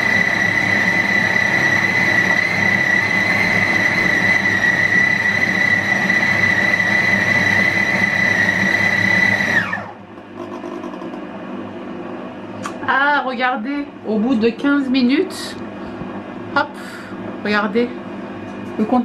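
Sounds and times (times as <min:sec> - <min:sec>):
cooking robot motor whine: 0:00.0 - 0:11.2.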